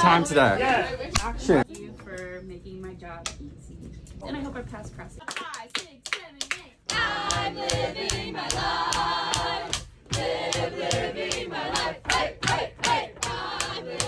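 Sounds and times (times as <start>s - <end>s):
people clapping on the beat: 5.2s - 14.0s
group singing in chorus: 6.9s - 14.0s.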